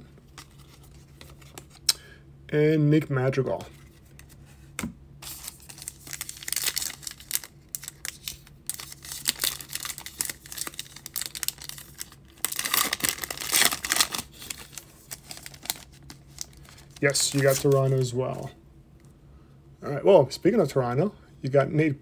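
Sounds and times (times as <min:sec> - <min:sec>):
foil wrapper tearing and crinkling: 0:05.2 - 0:18.1.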